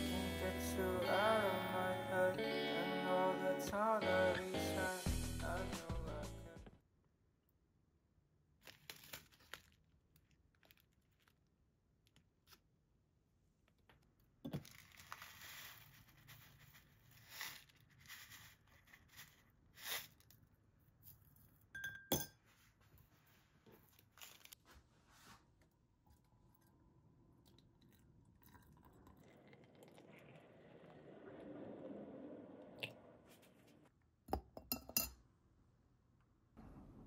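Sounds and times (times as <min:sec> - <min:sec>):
foil sachet crinkling and tearing: 0:08.6 - 0:11.4, 0:14.7 - 0:20.2
water pouring into glass: 0:26.1 - 0:33.0.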